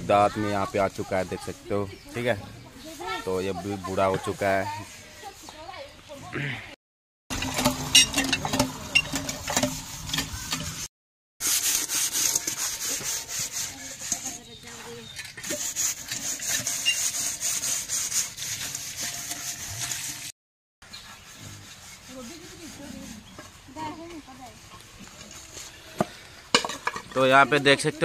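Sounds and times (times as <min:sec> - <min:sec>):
pot being scrubbed by hand: 0:02.2 - 0:05.8, 0:07.3 - 0:27.2
water pouring into metal pot: 0:07.3 - 0:10.8, 0:15.5 - 0:20.3.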